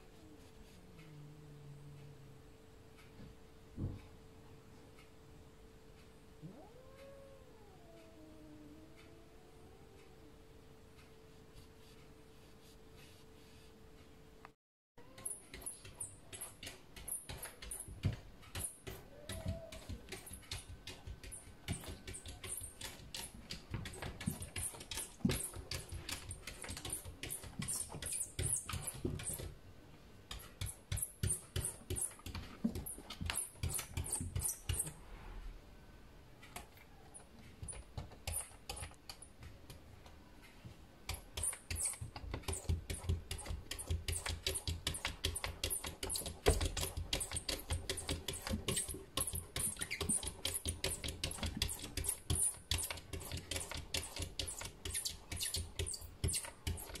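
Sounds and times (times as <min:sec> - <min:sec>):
cat claws scratching on glass: 0:41.1 - 0:57.0.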